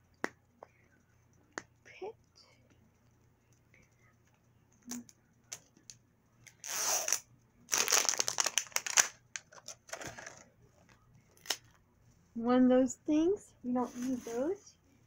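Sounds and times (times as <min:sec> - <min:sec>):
plastic wrapping crinkling: 0:06.6 - 0:10.4.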